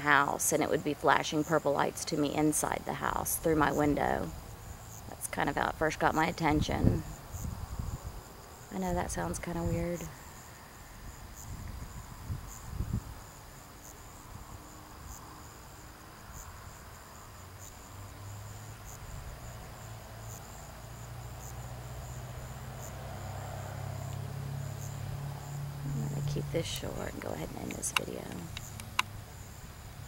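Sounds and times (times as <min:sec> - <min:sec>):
crickets trilling: 0:00.0 - 0:30.0
low steady hum: 0:24.1 - 0:29.5.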